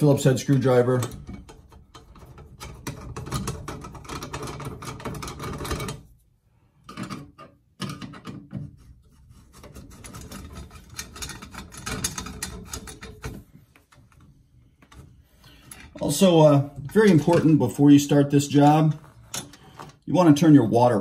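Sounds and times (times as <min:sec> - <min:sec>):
screwdriver clicking and scraping: 0:19.0 - 0:20.0.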